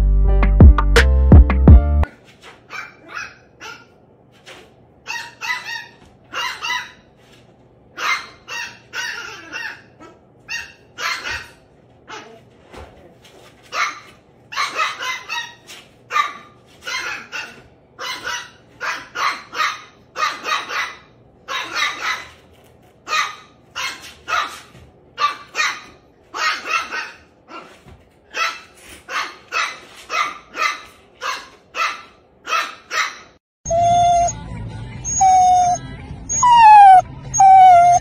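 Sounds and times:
dog barking: 8.0s - 11.5s, 13.7s - 22.3s, 23.1s - 24.6s, 25.2s - 27.7s, 28.3s - 33.4s.

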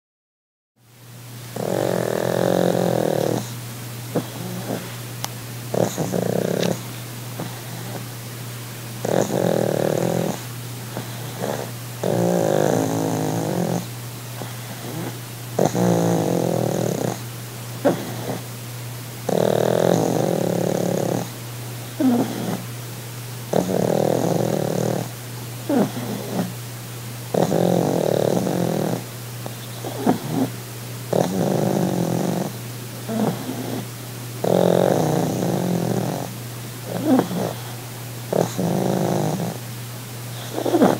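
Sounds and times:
dog snoring: 1.5s - 5.1s, 5.7s - 8.1s, 9.0s - 18.5s, 19.2s - 22.7s, 23.5s - 26.6s, 27.3s - 39.7s, 40.3s - 40.9s
dog snuffling: 1.6s - 5.1s, 5.7s - 8.1s.

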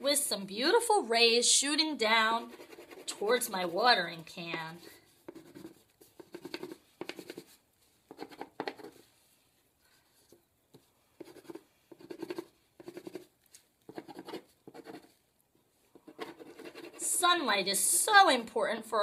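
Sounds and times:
crayon scratching on paper: 2.4s - 9.1s, 10.2s - 13.3s, 13.9s - 15.2s, 15.9s - 18.4s.

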